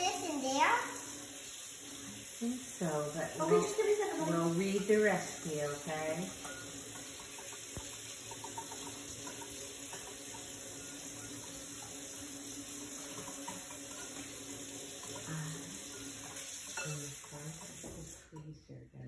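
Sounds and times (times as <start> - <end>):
kitchen tap running: 0.0 - 18.4.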